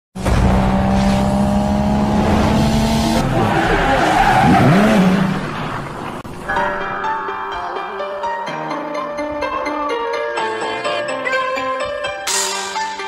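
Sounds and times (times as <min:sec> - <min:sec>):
car engine revving high: 0:00.3 - 0:06.0
music: 0:06.3 - 0:13.0.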